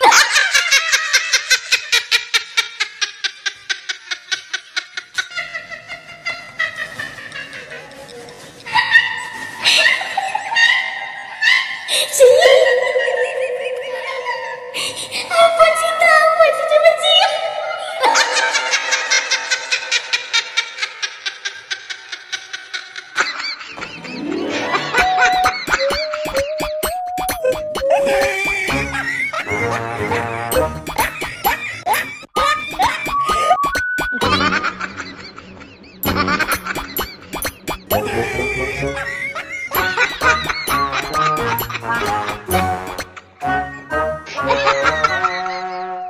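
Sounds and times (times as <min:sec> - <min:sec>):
high-pitched laughter: 0:00.0 - 0:15.5, 0:17.8 - 0:46.0
person giggling: 0:11.9 - 0:15.4, 0:18.1 - 0:46.0
music tones: 0:24.0 - 0:31.6, 0:39.8 - 0:45.2.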